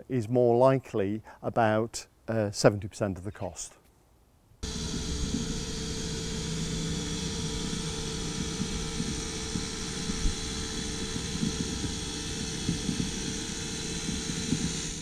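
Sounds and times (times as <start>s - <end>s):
cylinder mower whirring: 4.6s - 15.0s.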